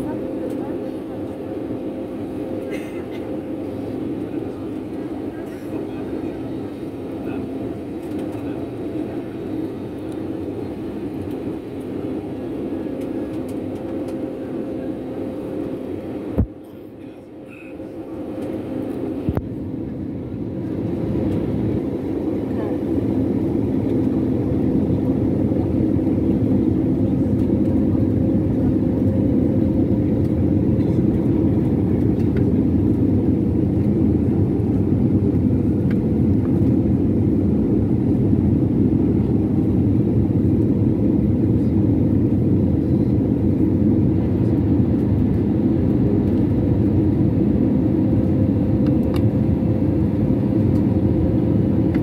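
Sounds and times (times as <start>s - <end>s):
jet engine and air rumble: 0.0s - 52.0s.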